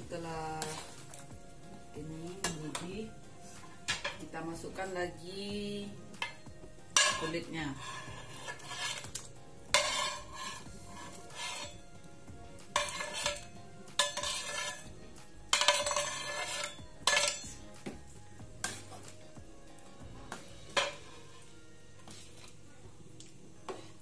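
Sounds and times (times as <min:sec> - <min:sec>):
metal ladle scraping plate and wok: 0:07.0 - 0:11.9, 0:12.7 - 0:17.7, 0:20.7 - 0:22.5.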